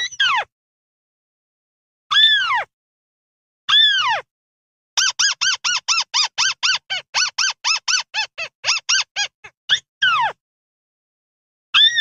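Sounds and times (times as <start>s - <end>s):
short squeaky bird notes: 5.0s - 10.4s.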